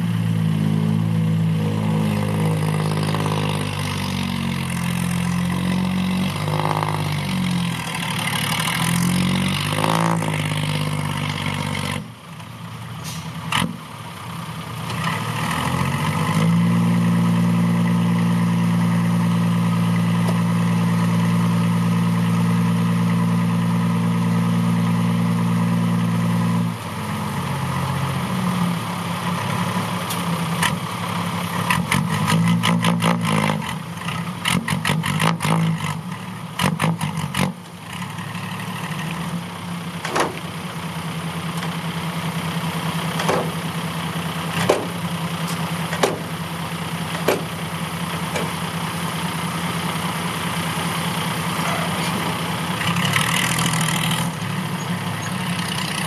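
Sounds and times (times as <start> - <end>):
diesel truck engine revving: 0.0 - 12.2, 13.0 - 56.0
sharp clicks and knocks: 40.0 - 40.5, 43.2 - 43.6, 44.6 - 46.3, 47.1 - 47.5, 48.3 - 48.6.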